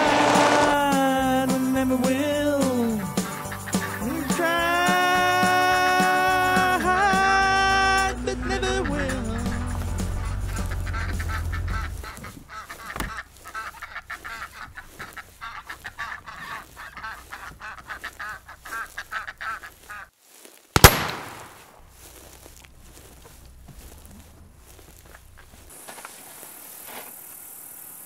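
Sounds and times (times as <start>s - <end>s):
waterfowl honking and quacking: 3.0s - 4.6s, 8.3s - 9.5s, 10.4s - 20.1s
loud gunshot with echo: 20.8s - 21.6s.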